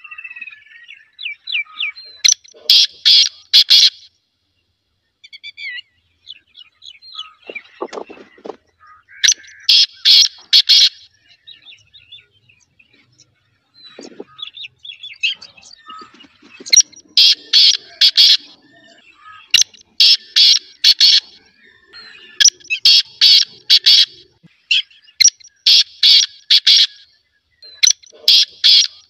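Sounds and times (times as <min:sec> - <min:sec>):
birds chirping softly: 0:00.0 - 0:29.0
francolin harsh grating call: 0:08.8 - 0:11.1, 0:13.9 - 0:24.8, 0:25.7 - 0:27.0, 0:27.8 - 0:29.0.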